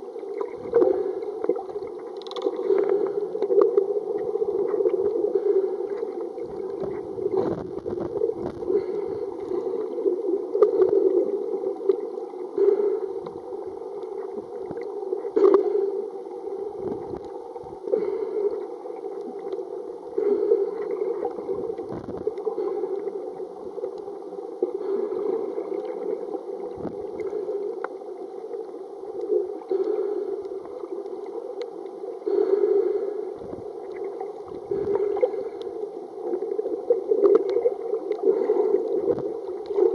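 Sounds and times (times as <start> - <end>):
underwater water rushing: 0.0 - 39.9.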